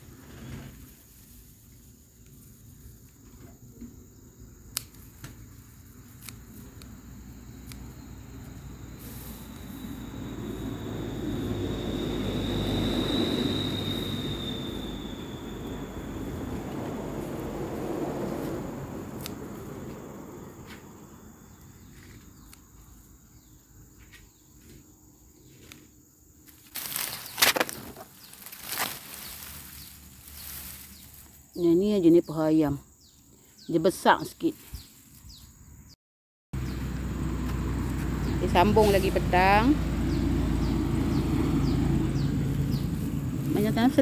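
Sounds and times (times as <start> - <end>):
road vehicle rumble: 0.0 - 24.8, 26.4 - 36.0, 36.6 - 44.0
insects trilling: 0.0 - 36.0, 36.6 - 44.0
sharp clicks of stalks trimmed: 4.6 - 8.5, 19.1 - 19.7, 26.5 - 31.3.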